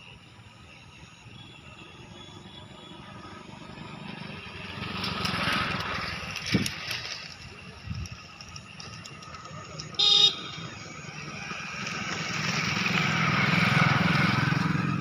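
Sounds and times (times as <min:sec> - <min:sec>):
vehicle passing by: 0:02.3 - 0:07.7, 0:10.4 - 0:15.0.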